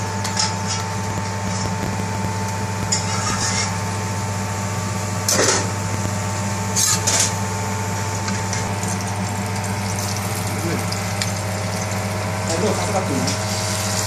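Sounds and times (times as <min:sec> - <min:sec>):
mechanical kitchen hum: 0:00.0 - 0:14.0
metal spatula scraping iron griddle: 0:02.9 - 0:03.8, 0:06.8 - 0:07.4.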